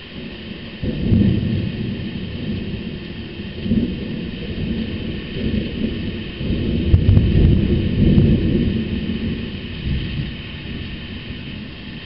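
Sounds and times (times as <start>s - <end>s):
deep thunder rumble: 0.0s - 12.0s.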